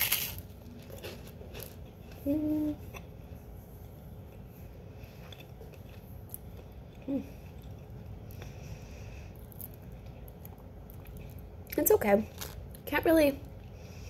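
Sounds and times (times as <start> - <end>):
person chewing crunchy wafer: 0.0 - 3.2, 4.2 - 8.6, 9.3 - 11.6, 12.3 - 12.8.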